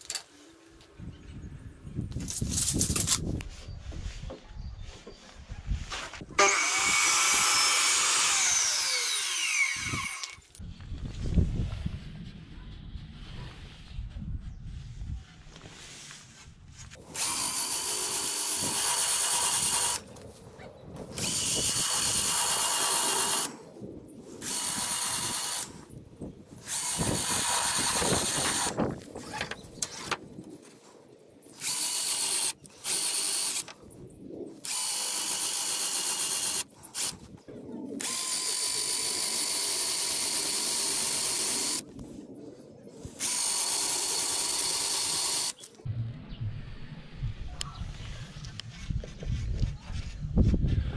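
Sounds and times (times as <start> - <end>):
power drill boring into wood: 6.4 - 10.4, 17.1 - 20.1, 21.1 - 23.5, 24.4 - 25.8, 26.6 - 28.8, 31.6 - 33.7, 34.6 - 37.2, 38.0 - 41.8, 43.2 - 45.7.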